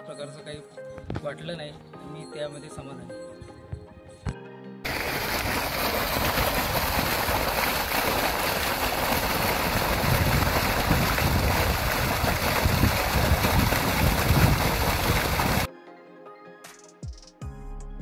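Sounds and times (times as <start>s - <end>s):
water gushing and splashing: 4.9s - 15.7s.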